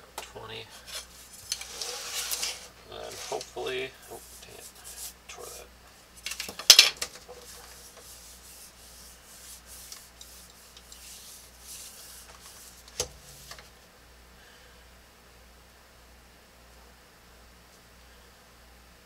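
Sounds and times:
plastic scraping over paper: 0:00.8 - 0:05.2.

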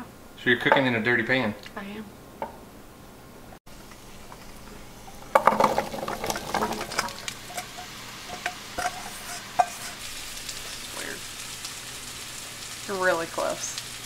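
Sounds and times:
butter sizzling: 0:03.7 - 0:14.0
vegetables clattering into a pan: 0:04.3 - 0:10.8.

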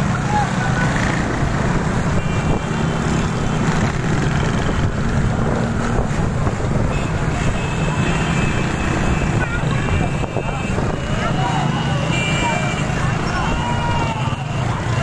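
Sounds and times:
motorcycle engines running: 0:00.0 - 0:15.0
wind rushing over microphone: 0:01.5 - 0:07.6, 0:09.3 - 0:11.6.

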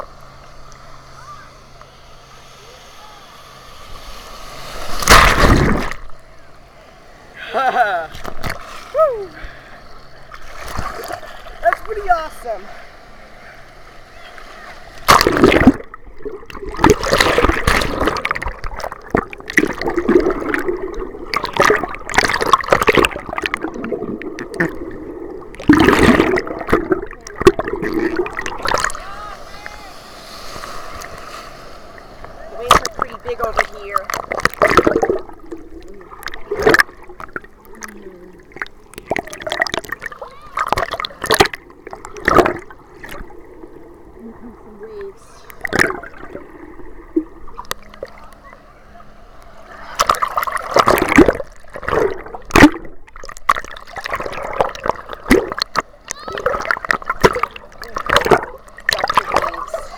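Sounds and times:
muffled underwater seawater churning: 0:00.0 - 0:59.9
ocean water splashing: 0:00.0 - 0:59.9.

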